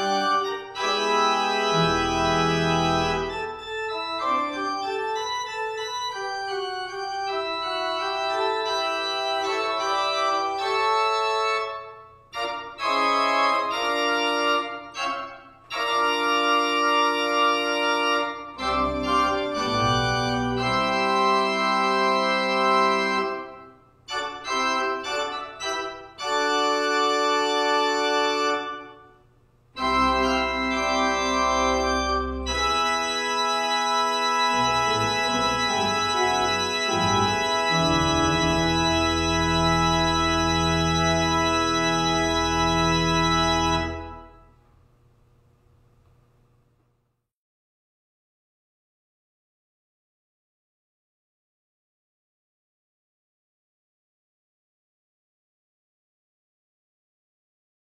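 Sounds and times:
church organ chords: 0.0 - 44.6.

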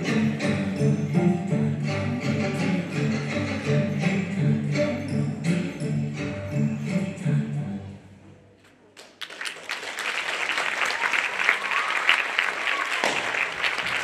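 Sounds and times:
music: 0.0 - 8.5
audience applause: 9.0 - 14.0.

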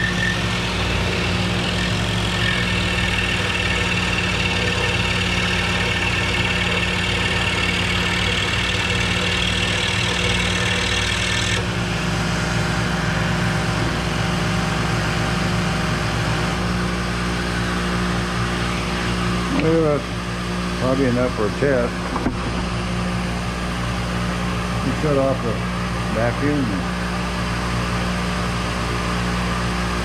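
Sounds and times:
vacuum blower humming: 0.0 - 16.7.

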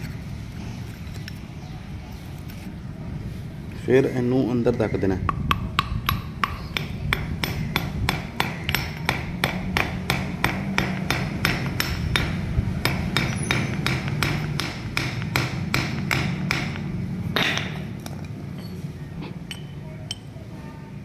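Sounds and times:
hammer tapping on metal: 5.2 - 17.8.

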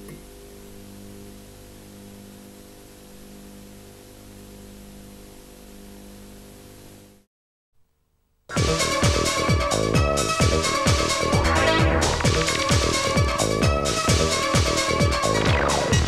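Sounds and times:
low mains hum: 0.0 - 8.5
tape hiss: 0.0 - 8.5, 10.6 - 15.9
loud electronic music: 8.6 - 16.0.

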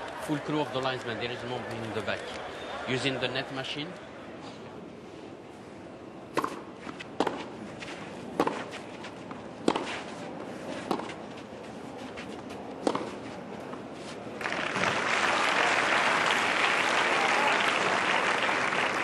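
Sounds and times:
low background noise: 0.0 - 19.0
tennis ball hit by rackets: 6.3 - 7.5, 8.4 - 8.8, 9.6 - 10.1, 10.8 - 11.2, 12.8 - 13.2.

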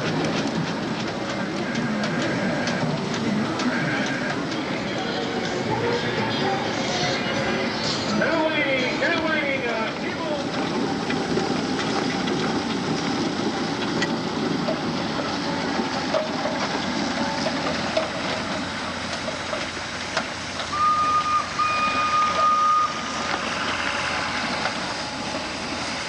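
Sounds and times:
steady background noise: 0.0 - 26.0
high whistle toots: 20.7 - 23.1.

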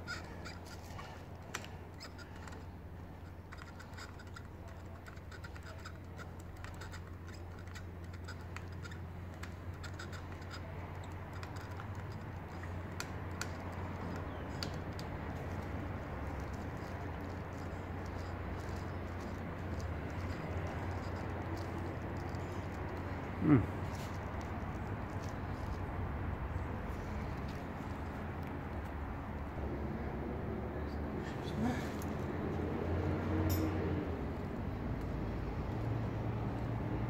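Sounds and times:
screwdriver clicks and scratches: 0.1 - 23.1.

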